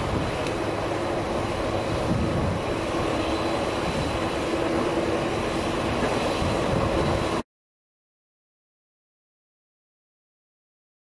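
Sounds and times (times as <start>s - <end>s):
turboprop engines running: 0.0s - 7.4s.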